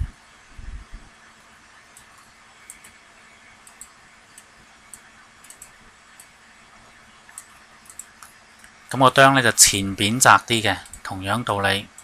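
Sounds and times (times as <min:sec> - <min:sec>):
low hum and hiss: 0:00.0 - 0:12.0
faint computer mouse clicks: 0:01.9 - 0:03.0, 0:03.6 - 0:06.3, 0:07.3 - 0:08.8.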